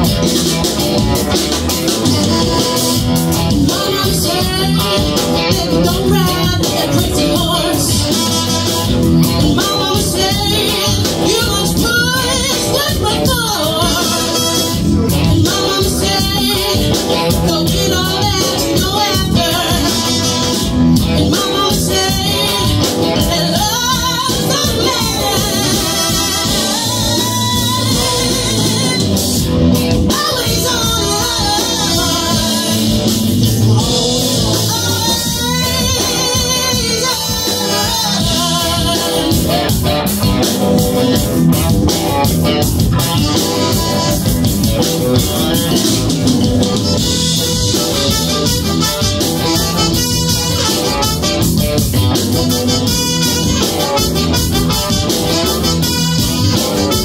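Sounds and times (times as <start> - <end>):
funk band playing: 0.0 - 57.0
woman singing: 2.3 - 29.4, 30.0 - 39.7.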